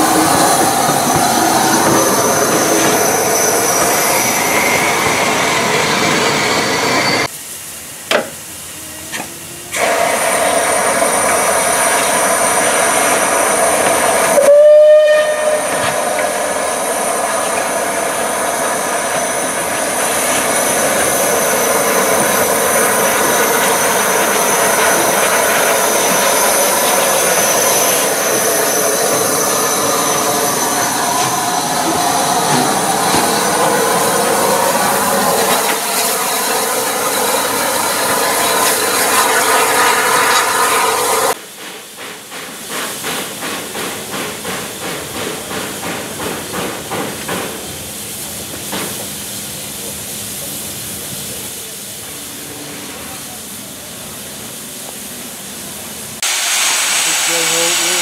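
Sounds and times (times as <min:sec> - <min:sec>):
steam hissing: 0:00.0 - 0:58.0
steam whistle blast: 0:14.3 - 0:16.0.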